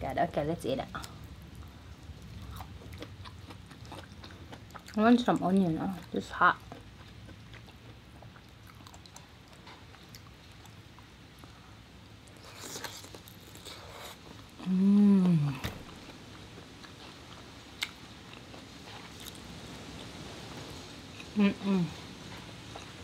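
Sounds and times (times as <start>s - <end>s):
person chewing: 2.2s - 5.0s, 6.6s - 11.6s, 12.3s - 14.5s, 15.2s - 19.4s
person humming mmm: 14.6s - 15.6s, 21.4s - 22.0s.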